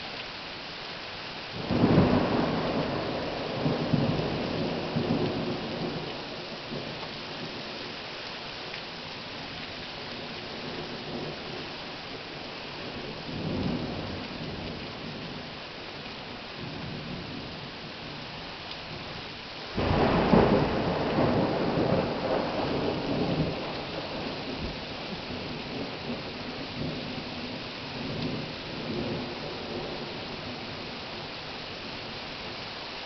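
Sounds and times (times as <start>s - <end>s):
heavy rain pouring: 0.0s - 33.0s
thunder rumbling: 1.6s - 7.6s, 19.8s - 30.9s.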